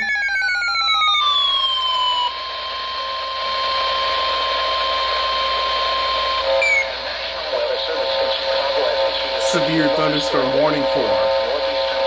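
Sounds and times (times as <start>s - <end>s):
falling tones: 0.0s - 6.9s
steady high alarm beep: 0.0s - 7.0s
radio hiss: 2.3s - 12.0s.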